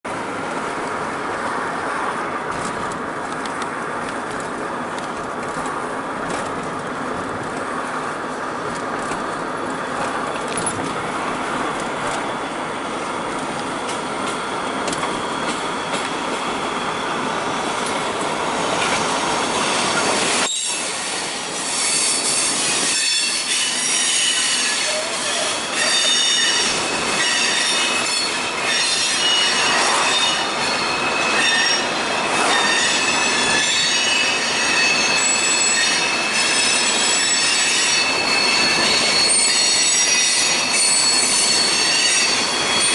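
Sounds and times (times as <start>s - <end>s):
road noise: 0.0s - 42.9s
freight train rumbling: 0.1s - 42.9s
train wheels squealing: 14.0s - 42.9s.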